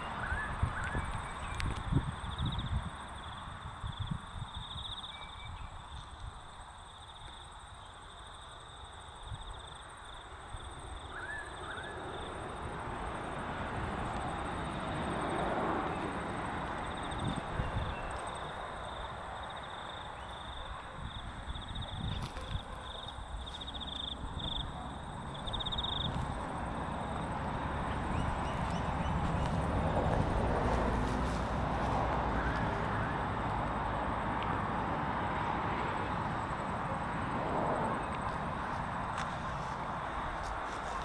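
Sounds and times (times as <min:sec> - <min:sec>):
wind rumbling on microphone: 0:00.0 - 0:06.6, 0:12.6 - 0:19.4, 0:20.6 - 0:36.6
pulsing insect trill: 0:22.8 - 0:29.0.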